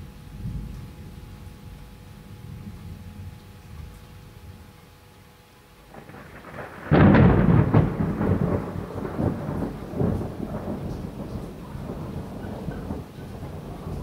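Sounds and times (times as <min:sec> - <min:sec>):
thunder crack and rumble: 0:05.9 - 0:14.0.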